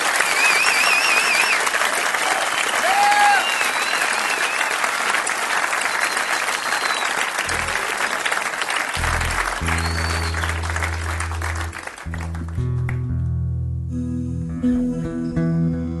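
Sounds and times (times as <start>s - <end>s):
audience applauding: 0.0s - 13.1s
people shouting approval: 2.8s - 3.5s
warbling whistle: 9.4s - 11.6s.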